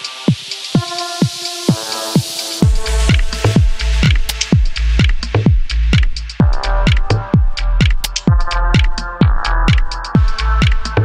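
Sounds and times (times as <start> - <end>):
electronic music: 0.0 - 11.0
steady kick drum: 0.0 - 11.0
heavy deep bass: 2.6 - 11.0.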